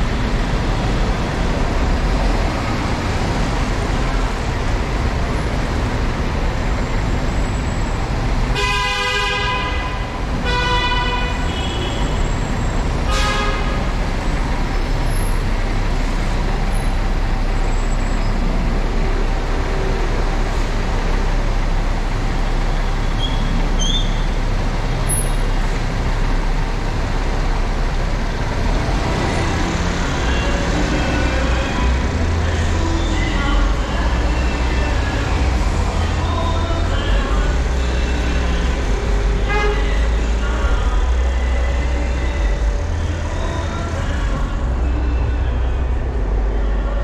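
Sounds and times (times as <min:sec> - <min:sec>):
road traffic rumble: 0:00.0 - 0:47.0
vehicle horn: 0:08.5 - 0:12.4, 0:13.0 - 0:14.0, 0:39.4 - 0:40.1.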